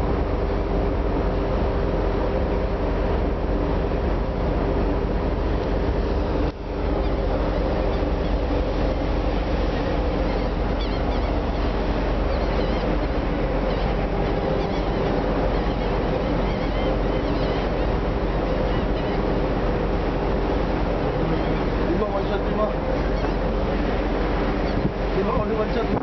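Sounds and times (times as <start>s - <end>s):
ship engine humming: 0.0s - 26.0s
water rushing past hull: 0.0s - 26.0s
wind on microphone: 0.0s - 26.0s
gulls crying: 6.4s - 26.0s.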